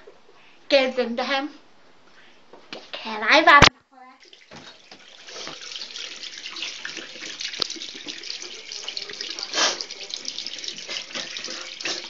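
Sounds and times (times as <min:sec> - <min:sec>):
tap water running into sink: 0:04.2 - 0:12.0.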